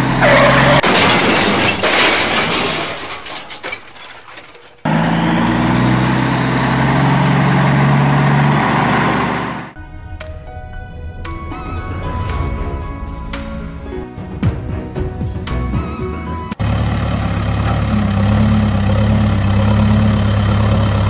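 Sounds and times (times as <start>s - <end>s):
loud crash with shattering: 0.2s - 4.9s
light plucked music: 9.8s - 16.6s.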